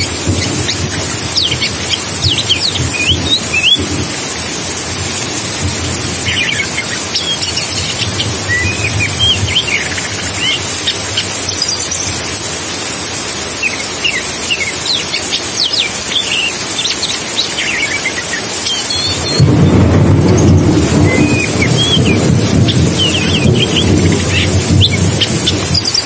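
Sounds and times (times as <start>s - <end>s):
bird singing whistles and chirps: 0.0s - 4.1s, 6.2s - 12.2s, 13.6s - 26.0s
rushing water: 0.0s - 26.0s
deep rumble: 19.3s - 25.8s.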